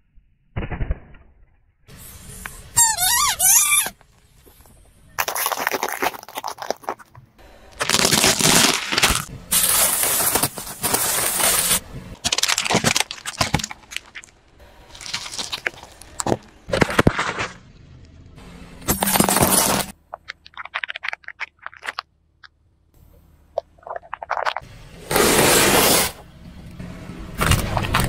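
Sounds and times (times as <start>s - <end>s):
tyre crushing objects: 4.5s - 17.6s, 18.9s - 22.0s.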